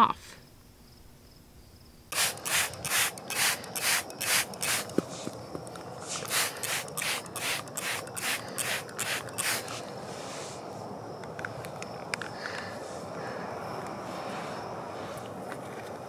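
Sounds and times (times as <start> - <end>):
spray bottle spritzing: 2.1 - 5.2, 6.0 - 9.8.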